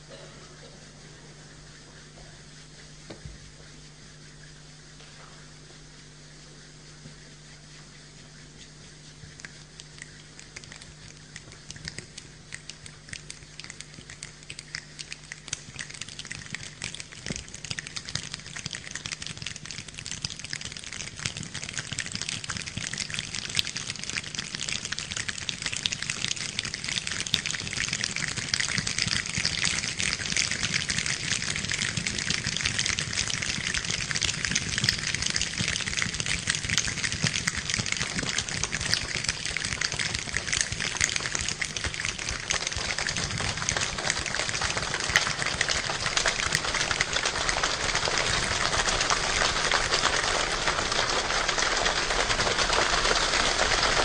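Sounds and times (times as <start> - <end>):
finger snapping and hand rubbing: 8.6 - 23.2.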